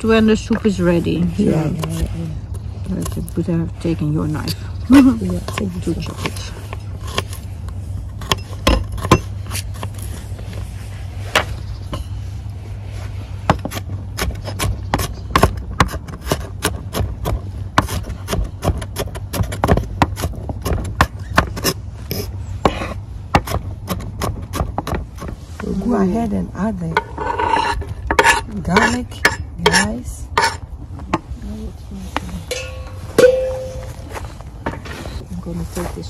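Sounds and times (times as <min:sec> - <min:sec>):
low rumble: 0:30.3 - 0:36.0.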